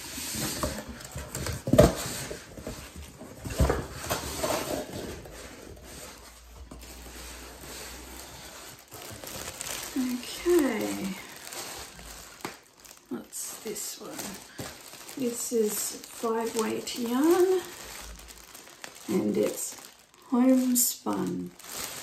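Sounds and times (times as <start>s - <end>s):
cardboard and packaging rustling: 0.0s - 22.0s.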